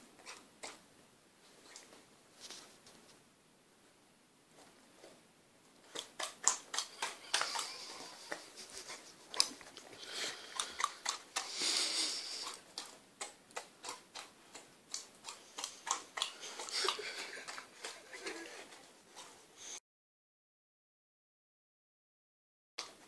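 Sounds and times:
puppy chewing and smacking lips: 5.8 - 19.5.

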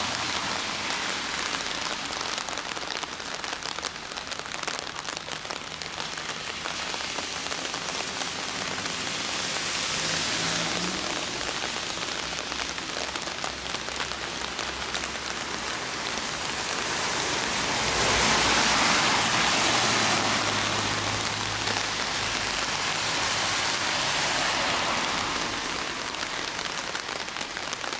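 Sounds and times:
cars passing on wet road: 0.0 - 27.9
rain falling on pavement: 0.0 - 27.9.

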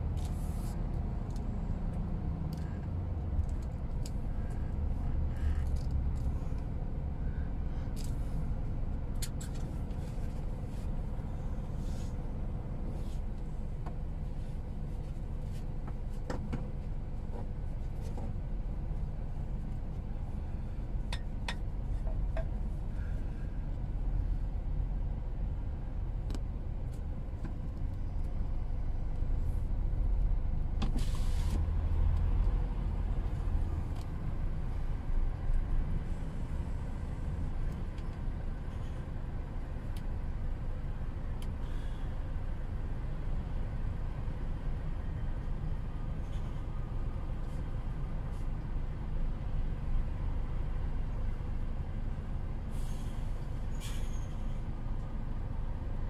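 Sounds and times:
truck diesel engine rumbling: 17.0 - 56.0.

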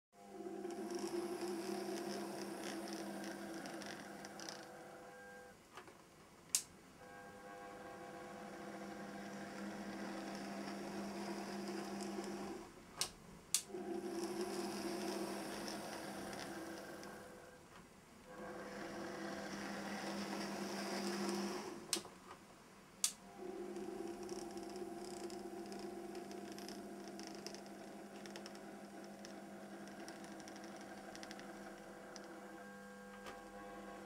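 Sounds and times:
model train motor humming: 0.5 - 4.7, 8.1 - 12.6, 13.6 - 17.5, 18.3 - 21.9, 23.3 - 34.0.

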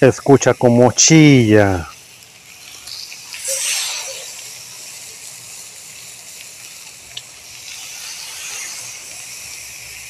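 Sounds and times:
fish sizzling on griddle: 0.0 - 10.0.

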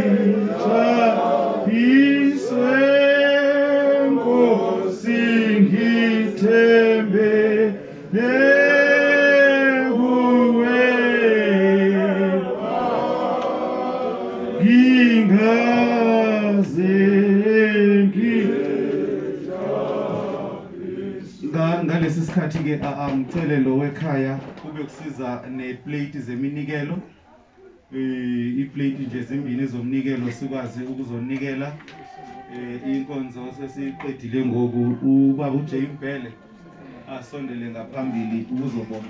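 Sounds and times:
people singing a hymn: 0.0 - 22.2, 30.1 - 39.0.

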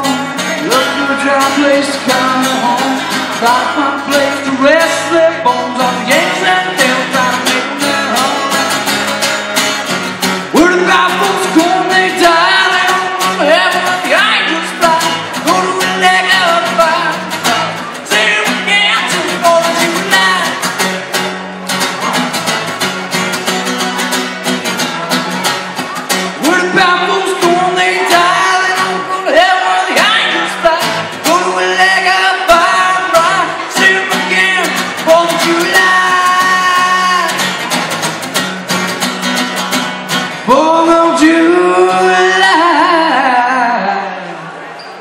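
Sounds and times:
man singing through pa: 0.0 - 9.1, 10.5 - 20.7, 26.4 - 37.4, 40.4 - 44.4
acoustic guitar strumming: 0.0 - 44.8.

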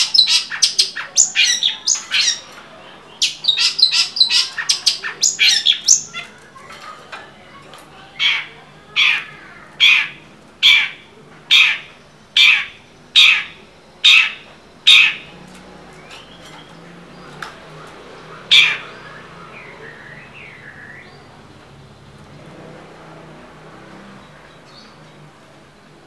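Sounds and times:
shrike harsh calls: 0.0 - 22.0
soft whistled bird notes: 16.0 - 21.3.

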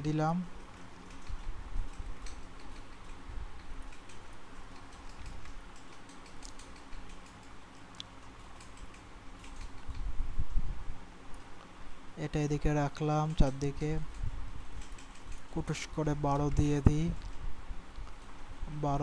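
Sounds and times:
low steady room hum: 0.0 - 19.0
computer mouse and keyboard clicks: 1.0 - 10.1, 13.4 - 15.7.

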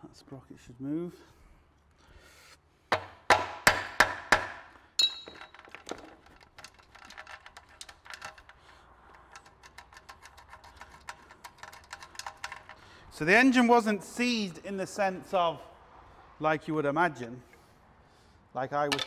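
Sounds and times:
light metallic clicks and rattles: 5.0 - 13.0.

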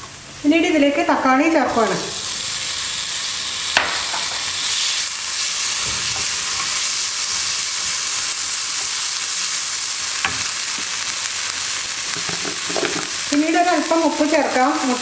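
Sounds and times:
food sizzling in hot oil: 0.0 - 15.0.

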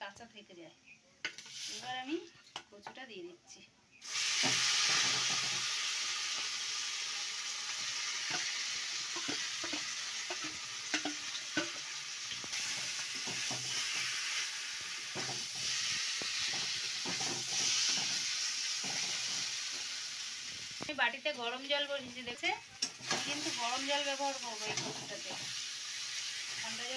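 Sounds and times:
food sizzling in hot oil: 1.2 - 2.6, 3.9 - 26.9
spatula scraping a wok: 1.3 - 1.9, 4.0 - 20.7, 22.8 - 23.8, 24.4 - 26.9.

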